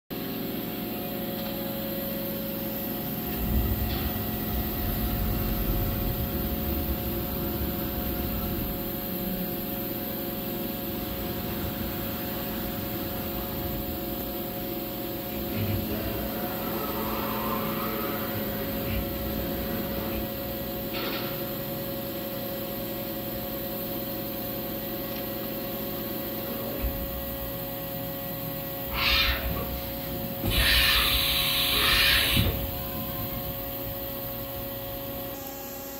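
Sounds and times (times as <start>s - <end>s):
machine electrical hum and whine: 0.1s - 35.9s
low machine rumble: 0.2s - 35.9s.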